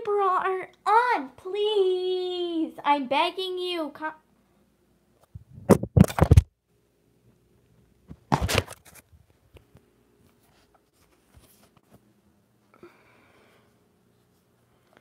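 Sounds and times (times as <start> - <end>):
phone handling noise: 5.6 - 6.5.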